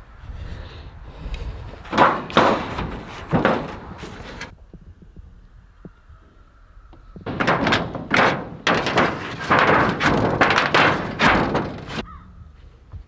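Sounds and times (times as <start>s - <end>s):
metal roofing scraping and rattling: 1.8s - 4.5s, 7.2s - 12.0s.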